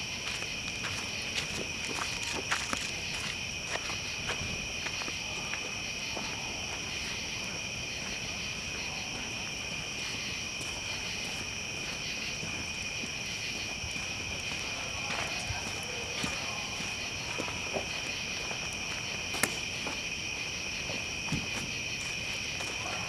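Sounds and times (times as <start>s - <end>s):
night insects trilling: 0.0s - 23.0s
campfire crackling and popping: 17.6s - 20.5s.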